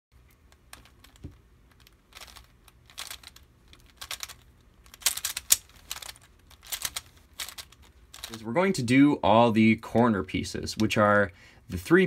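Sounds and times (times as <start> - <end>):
plastic puzzle clicking: 0.5 - 8.3.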